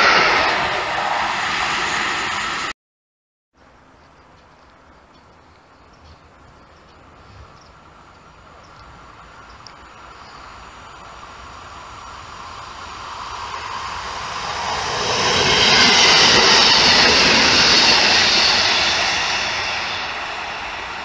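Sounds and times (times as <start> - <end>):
train wheels rushing on rails: 0.0 - 2.7, 7.4 - 21.0.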